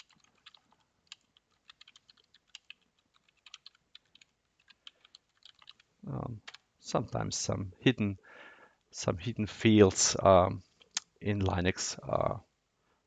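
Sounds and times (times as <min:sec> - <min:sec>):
computer keyboard clicking: 0:00.0 - 0:06.6.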